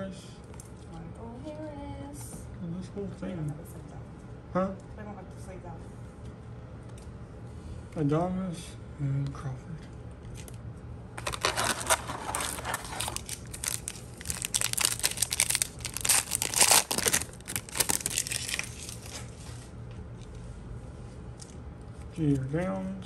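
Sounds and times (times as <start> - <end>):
foil wrapper tearing and crinkling: 11.2 - 19.3.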